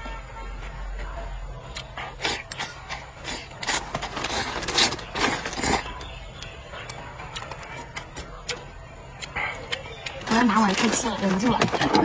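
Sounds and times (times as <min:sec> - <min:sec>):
chewing with small clicks: 0:06.4 - 0:10.2.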